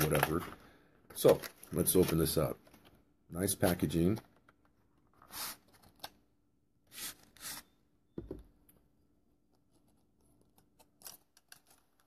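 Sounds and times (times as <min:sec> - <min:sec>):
paper rustling: 0:09.7 - 0:12.0.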